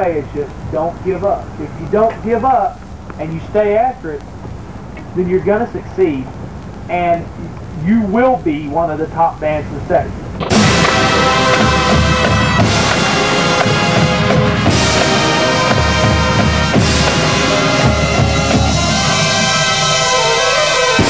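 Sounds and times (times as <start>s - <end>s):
brass and wind chords: 10.6s - 21.0s.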